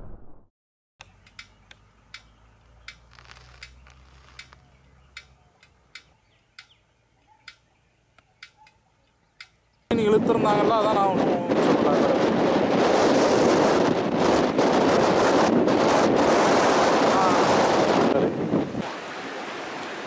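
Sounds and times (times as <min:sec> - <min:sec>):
faint sharp ticks: 0:01.0 - 0:06.8.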